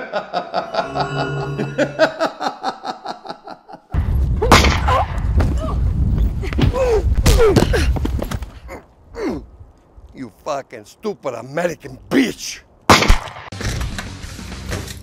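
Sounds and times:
pulsing electronic ringing tone: 0.7 - 2.3.

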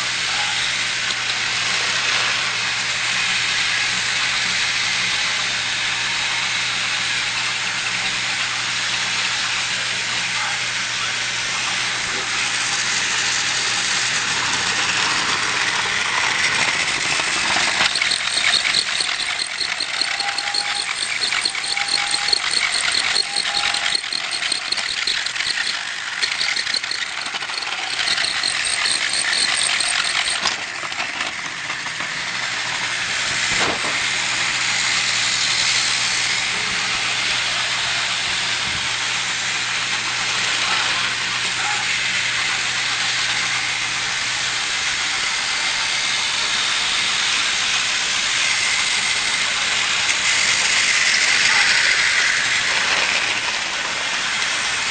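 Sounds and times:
toy train whirring hiss: 0.0 - 54.9
toy train ticking rattle: 13.5 - 33.2, 46.4 - 54.9.

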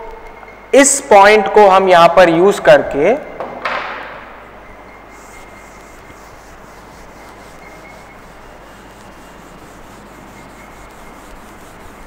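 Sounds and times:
duster rubbing on blackboard: 5.1 - 12.0.

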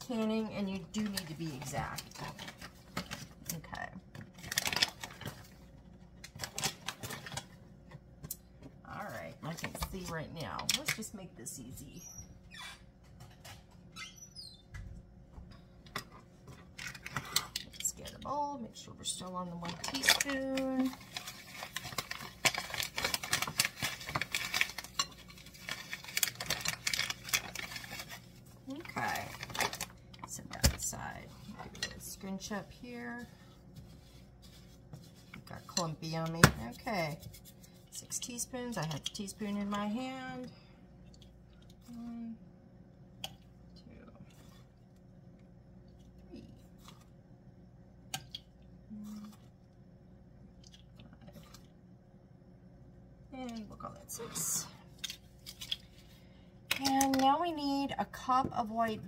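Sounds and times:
plastic bag crinkling: 4.3 - 7.5, 19.6 - 30.8.

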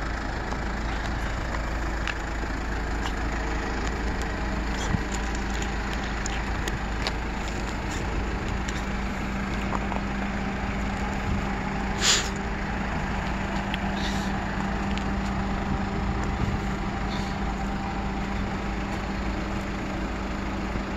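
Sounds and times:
diesel truck engine idling: 0.0 - 20.9
short hiss: 12.0 - 12.4.

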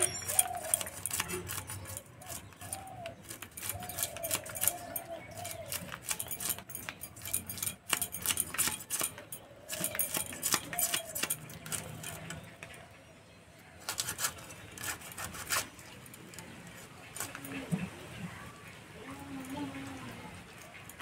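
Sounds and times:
knife scraping fish scales: 0.0 - 12.5, 13.8 - 17.8.

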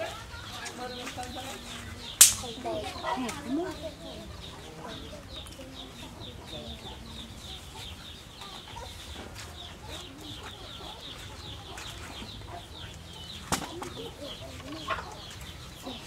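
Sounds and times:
birds chirping: 0.0 - 16.0
sharp click: 2.2 - 2.6.

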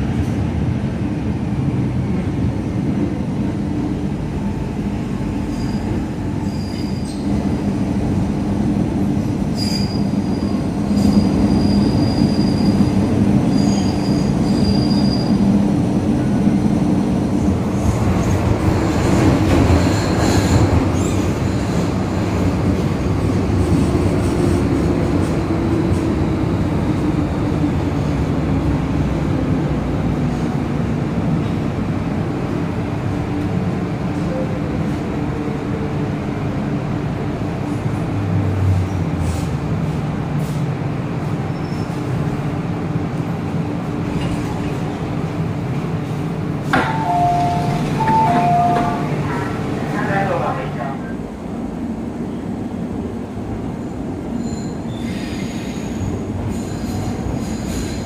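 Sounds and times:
two-tone door chime: 46.8 - 49.1.

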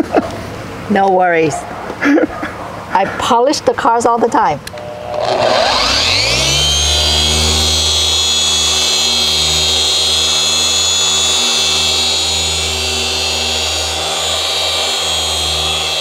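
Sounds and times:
polisher whining: 4.7 - 16.0.

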